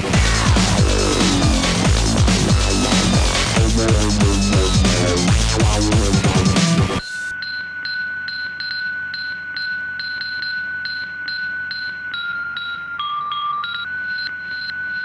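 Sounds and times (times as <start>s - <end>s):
high synth tone with pinging pulse: 0.0s - 6.4s
drum and bass music: 0.0s - 7.0s.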